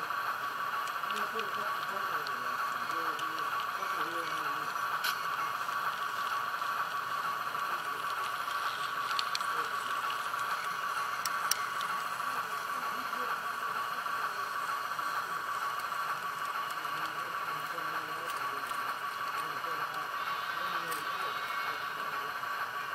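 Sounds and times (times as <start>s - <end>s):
model train whirring: 0.0s - 22.9s
sharp clicks: 8.0s - 12.2s.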